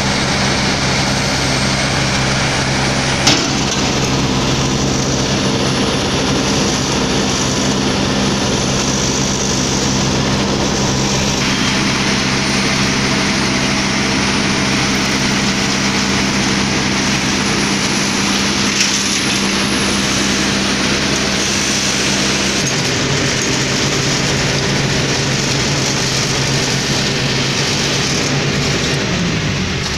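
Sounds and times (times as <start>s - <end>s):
heavy diesel engines droning: 0.0s - 29.9s
mechanical clatter: 3.2s - 4.4s.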